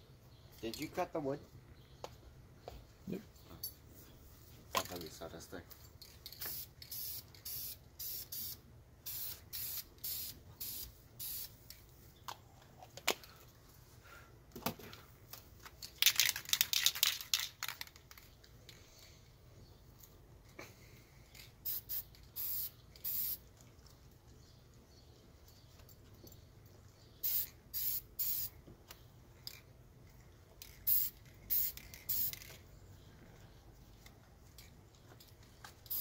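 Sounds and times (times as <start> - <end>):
aerosol spray can hissing: 6.5 - 11.5, 21.7 - 23.4, 27.2 - 28.5, 30.9 - 32.4.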